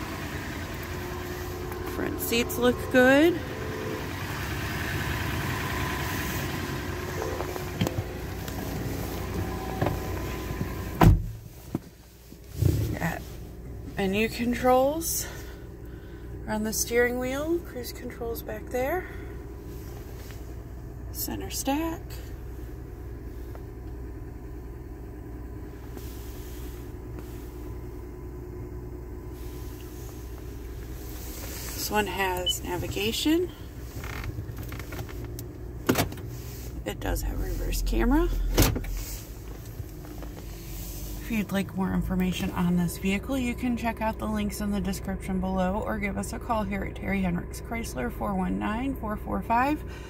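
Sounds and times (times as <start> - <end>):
car engine idling: 0.0 - 50.0
heavy thump: 9.7 - 11.8.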